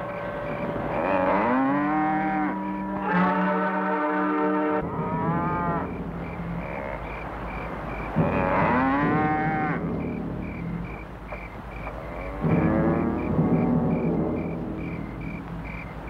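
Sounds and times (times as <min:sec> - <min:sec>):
crickets chirping: 0:00.0 - 0:03.9, 0:04.5 - 0:16.0
cattle mooing: 0:00.1 - 0:07.3, 0:08.1 - 0:10.2, 0:11.9 - 0:13.4.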